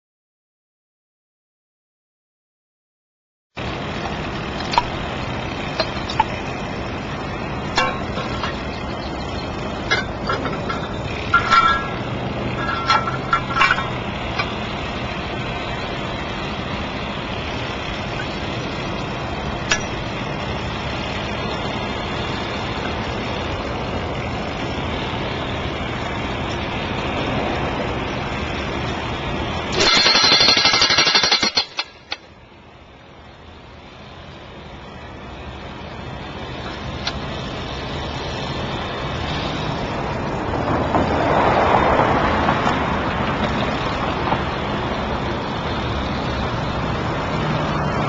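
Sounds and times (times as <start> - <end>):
outdoor background noise: 3.5 - 48.0
metallic clanks and knocks: 9.8 - 14.5.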